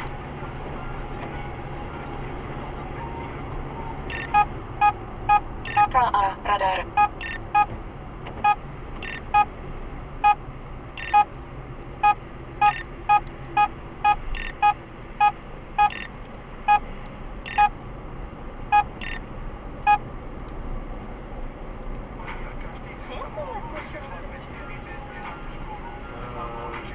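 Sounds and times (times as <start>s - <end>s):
short electronic beeps: 4.1s - 6.2s, 6.8s - 7.7s, 8.4s - 9.5s, 10.2s - 10.4s, 11.0s - 11.4s, 12.0s - 17.8s, 18.7s - 19.2s, 19.8s - 20.0s.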